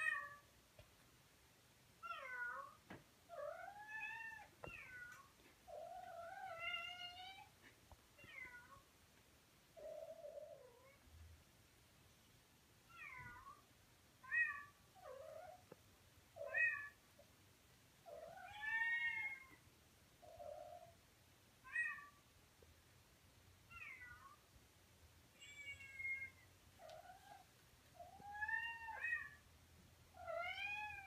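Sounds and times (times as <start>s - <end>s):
cat meowing: 25.4s - 29.4s, 30.2s - 31.0s.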